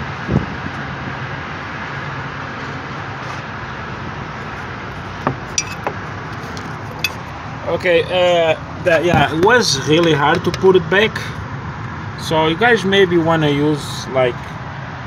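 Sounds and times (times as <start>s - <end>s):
low background rumble and hum: 0.0s - 15.0s
dull knock: 5.2s - 6.0s
small metallic clicks and clinks: 5.5s - 5.9s.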